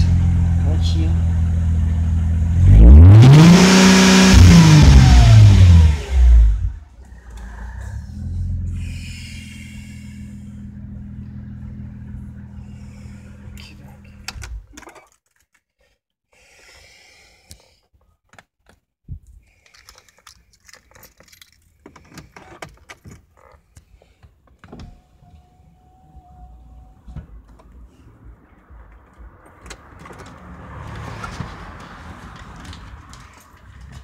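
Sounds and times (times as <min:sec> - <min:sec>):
car engine idling: 0:00.0 - 0:02.9, 0:03.6 - 0:14.5
keys jangling: 0:19.6 - 0:23.3.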